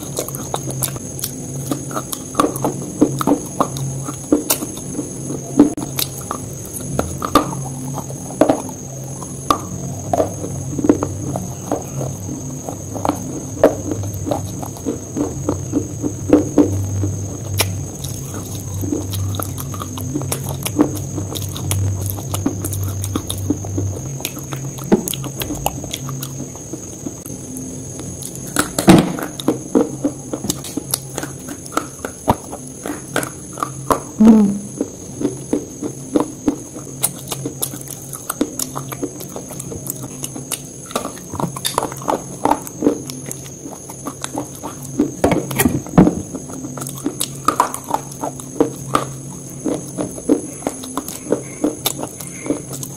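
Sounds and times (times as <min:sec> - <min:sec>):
open-mouthed chewing crunches: 0:00.0 - 0:52.9
low hum: 0:04.9 - 0:32.8
wet mouth clicks: 0:30.4 - 0:34.9.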